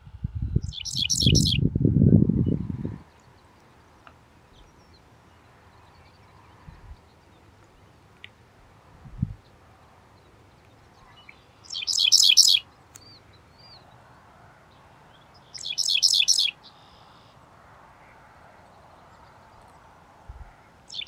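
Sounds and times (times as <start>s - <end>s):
bird singing buzzy chirps: 0.1s - 8.3s, 9.1s - 17.4s, 18.7s - 21.0s.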